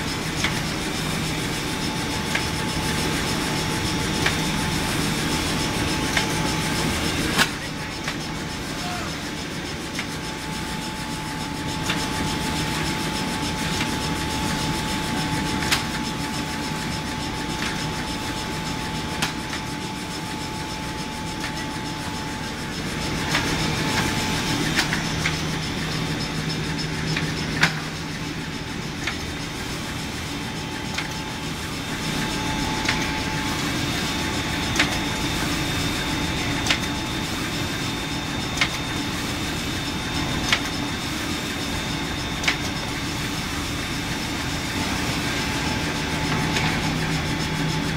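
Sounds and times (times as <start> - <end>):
steady machine noise: 0.0 - 47.9
sharp machine knock: 27.1 - 28.0.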